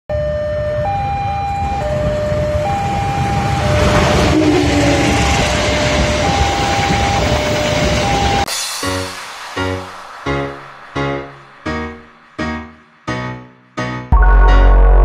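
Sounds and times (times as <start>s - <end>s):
two-tone crossing alarm: 0.1s - 8.5s
train passing: 0.8s - 14.0s
piano music: 2.0s - 15.0s.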